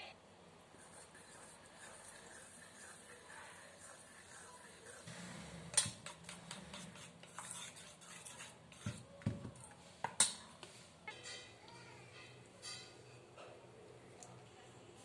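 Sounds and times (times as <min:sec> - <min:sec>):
metal spoon stirring batter in bowl: 0:00.8 - 0:11.6, 0:12.2 - 0:13.3.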